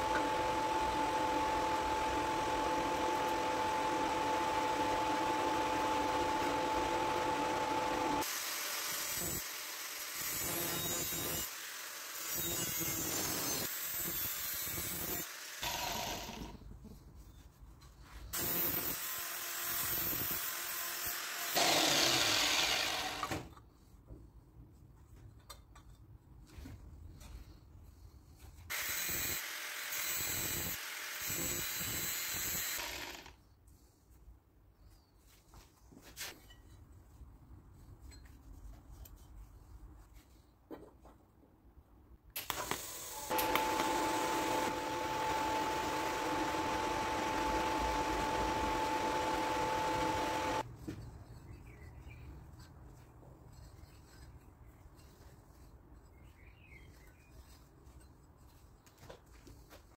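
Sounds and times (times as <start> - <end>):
power tool grinding metal: 0.0 - 16.5, 18.4 - 23.3, 28.7 - 33.3, 43.2 - 50.6.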